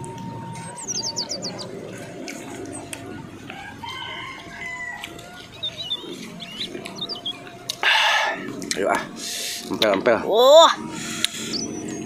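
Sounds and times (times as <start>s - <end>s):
rooster crowing: 0.0s - 8.6s.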